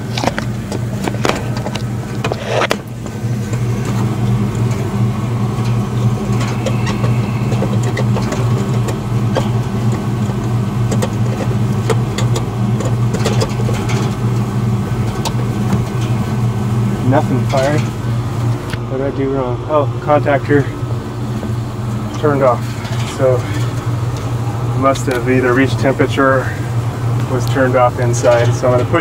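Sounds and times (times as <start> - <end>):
handling clicks and knocks: 0.0 - 5.0, 5.6 - 16.4
air conditioner unit humming: 0.0 - 29.0.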